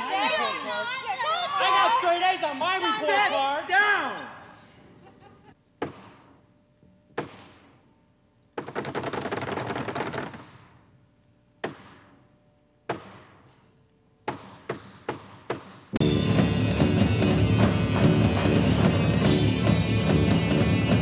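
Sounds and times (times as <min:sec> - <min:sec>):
fast drumming rattle of taps: 0:08.6 - 0:10.5
live rock band with drums: 0:16.0 - 0:21.0.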